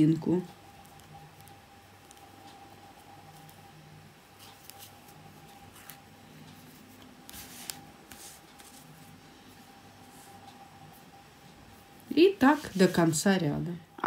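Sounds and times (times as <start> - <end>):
faint steady hum: 0.0 - 14.0
cloth rustle: 4.3 - 11.0, 12.2 - 13.3.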